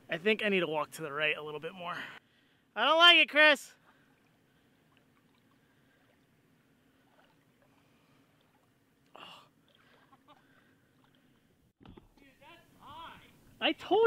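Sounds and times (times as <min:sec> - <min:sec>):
faint soft sounds: 0:03.7 - 0:13.6.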